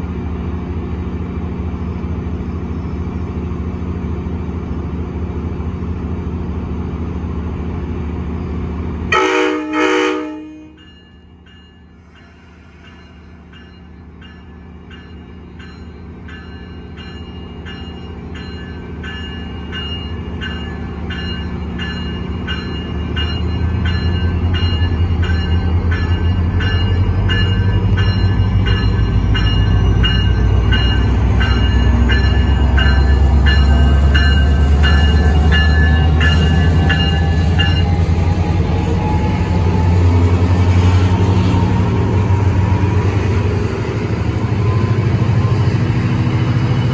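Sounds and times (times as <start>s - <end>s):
diesel locomotive engine rumble: 0.0s - 46.9s
train horn blast: 9.1s - 10.8s.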